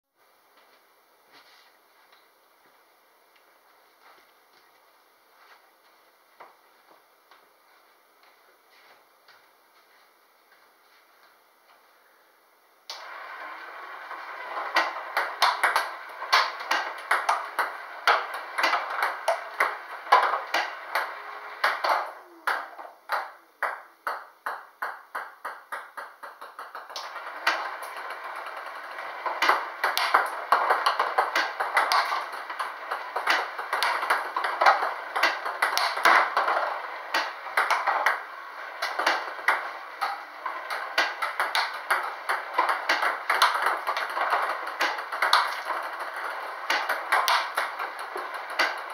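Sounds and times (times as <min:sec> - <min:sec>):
table tennis balls clicking: 0:12.9 - 0:48.9.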